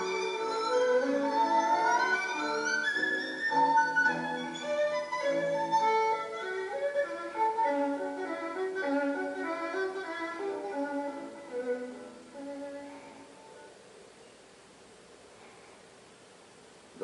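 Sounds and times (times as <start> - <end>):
instrumental background music: 0.0 - 13.7.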